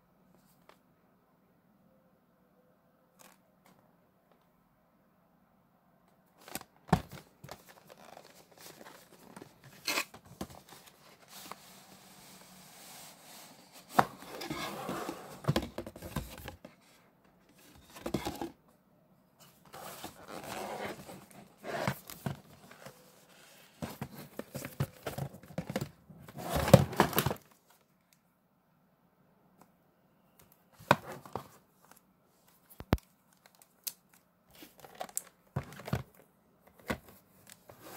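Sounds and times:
box sliding and rubbing: 0:10.6 - 0:16.4, 0:19.6 - 0:24.8, 0:26.3 - 0:27.3.

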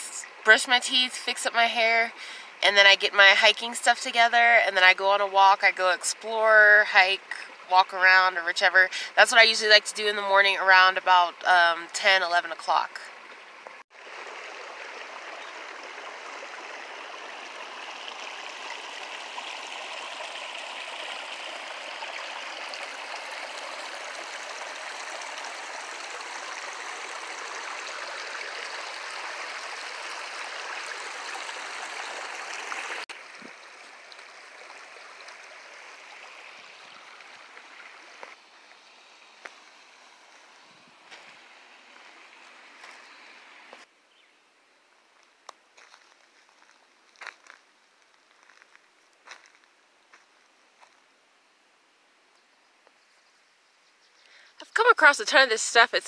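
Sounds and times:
water rushing over stones: 0:12.0 - 0:43.8.

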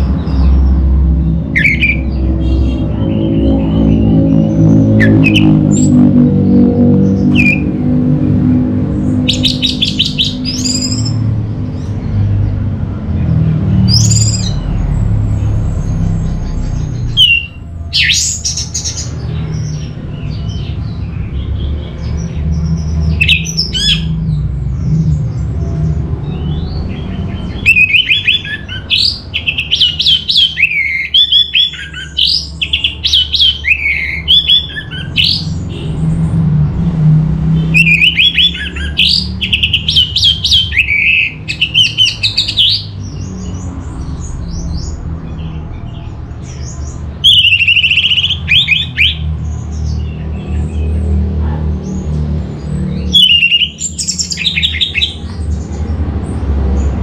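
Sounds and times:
thrush singing: 0:00.0 - 0:24.4.

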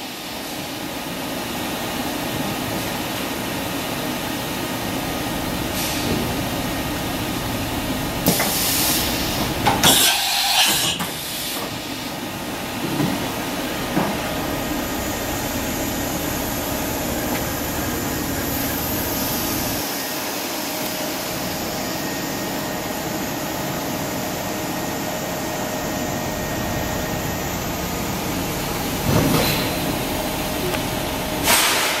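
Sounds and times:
machine whirring hiss: 0:05.5 - 0:07.3, 0:08.1 - 0:32.0
loud bursts of hiss: 0:08.2 - 0:12.1, 0:31.4 - 0:32.0.

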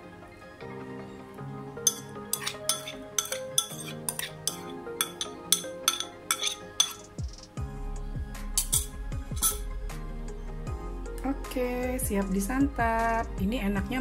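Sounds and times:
background music: 0:00.0 - 0:14.0
metal spoon scraping ceramic bowl: 0:01.9 - 0:07.2, 0:08.6 - 0:09.6.

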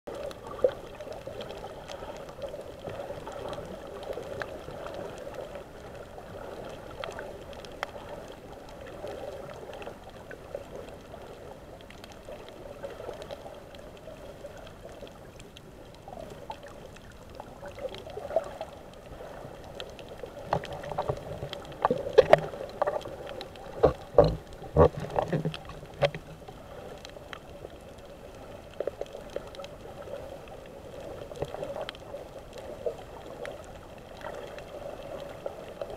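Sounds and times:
dull watery underwater hiss: 0:00.1 - 0:35.9
sharp clicks and knocks: 0:21.8 - 0:23.0, 0:23.8 - 0:26.3.

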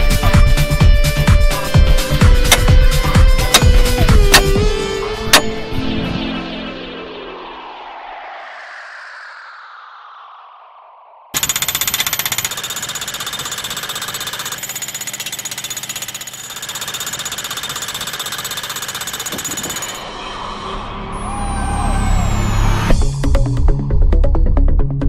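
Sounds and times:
demolition hammer hammering: 0:11.4 - 0:20.0.

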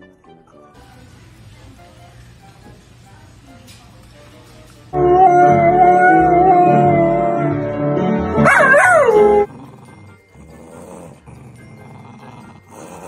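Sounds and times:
dog howling: 0:05.0 - 0:07.6, 0:08.4 - 0:09.5.

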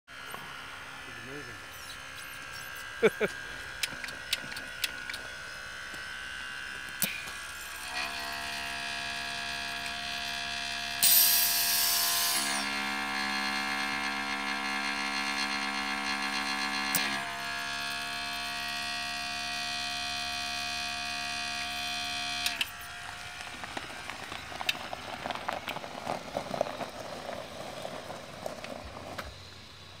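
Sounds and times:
air compressor humming: 0:00.1 - 0:30.0
tyres crunching over gravel: 0:22.7 - 0:30.0.

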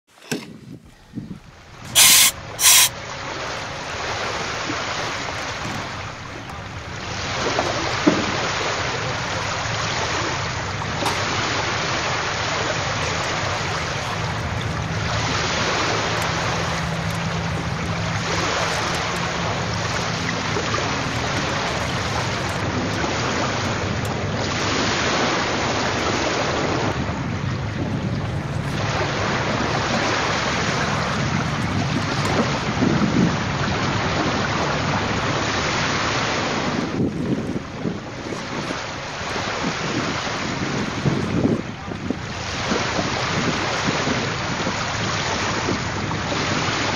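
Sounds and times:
water lapping: 0:00.1 - 0:46.9
wind on microphone: 0:00.3 - 0:46.9
short loud bursts: 0:01.9 - 0:02.9.

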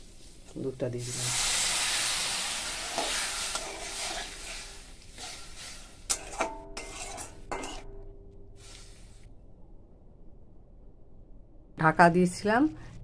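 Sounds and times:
food sizzling: 0:00.0 - 0:07.9
metal spatula scraping a wok: 0:01.2 - 0:08.0.

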